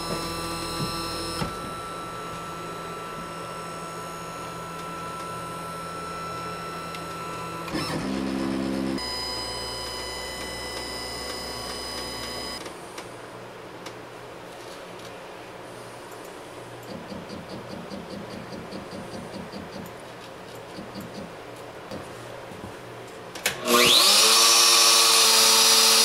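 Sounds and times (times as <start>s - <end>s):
stepper motors whining: 0.0s - 12.6s.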